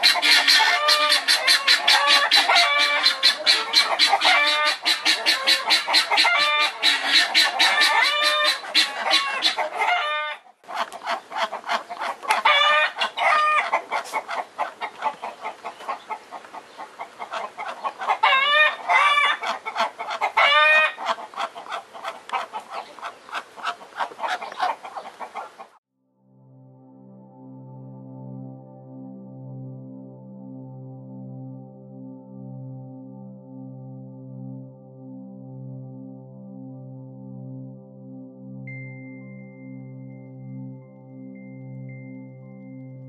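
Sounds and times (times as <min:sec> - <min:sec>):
drawn-out poultry calls: 0:00.0 - 0:25.8.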